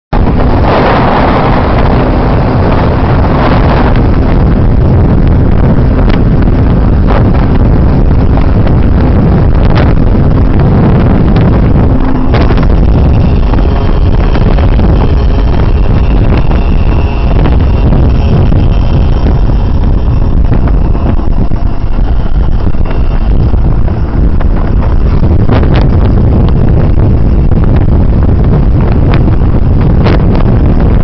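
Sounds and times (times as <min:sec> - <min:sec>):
wind rush on microphone: 0:00.0 - 0:31.0
motorcycle engine drone: 0:00.1 - 0:31.0.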